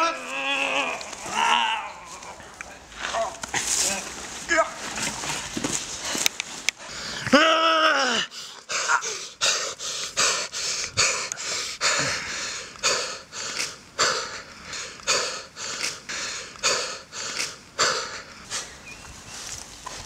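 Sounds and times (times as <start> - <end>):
man breathing hard and fast: 5.8 - 7.3, 8.2 - 18.8.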